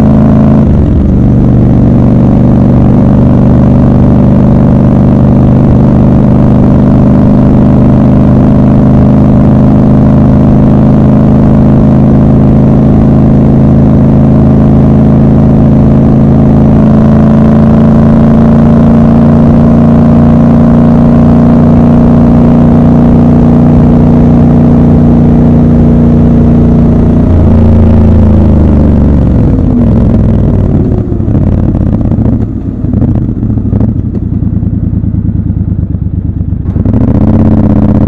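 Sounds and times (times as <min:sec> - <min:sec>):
motorcycle engine cruising: 0:00.0 - 0:38.0.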